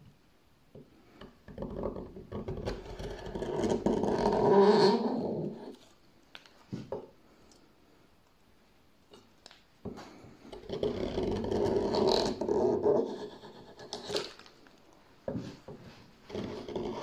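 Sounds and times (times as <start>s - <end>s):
gouge scraping through wood: 10.5s - 14.4s, 15.8s - 17.0s.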